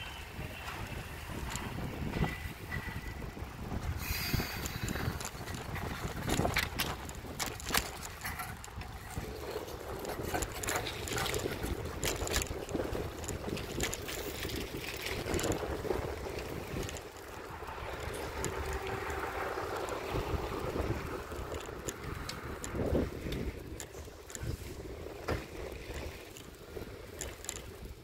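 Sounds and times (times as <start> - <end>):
low rumble over pavement: 0.0 - 28.0
wind buffeting microphone: 0.0 - 28.0
rattles and knocks from bumps: 4.6 - 26.5.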